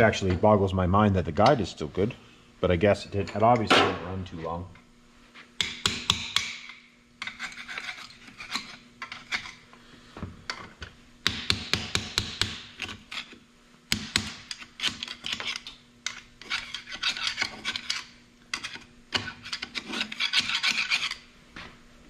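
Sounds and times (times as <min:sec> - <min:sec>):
hand tool scraping metal: 0:07.2 - 0:09.6, 0:14.5 - 0:21.2.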